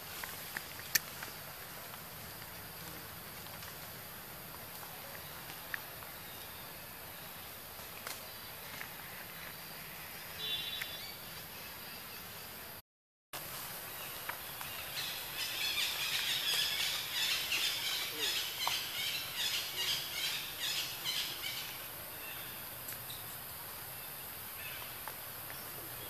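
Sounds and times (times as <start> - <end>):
steady high hiss: 13.4 - 26.0.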